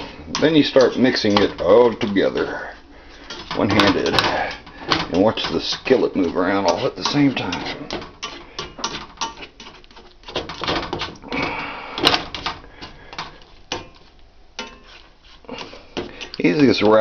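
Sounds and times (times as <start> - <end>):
skillet rattling on stove grate: 0.0 - 17.0
spatula scraping a skillet: 0.0 - 17.0.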